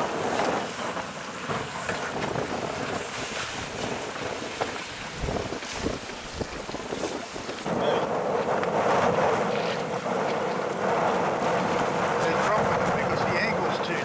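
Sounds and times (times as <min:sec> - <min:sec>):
waves washing: 0:00.0 - 0:14.0
wind buffeting microphone: 0:00.0 - 0:14.0.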